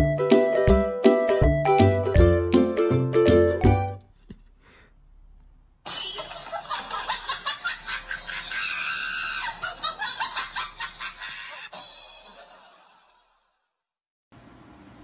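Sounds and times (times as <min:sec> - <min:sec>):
person laughing and shrieking: 0:07.9 - 0:10.0.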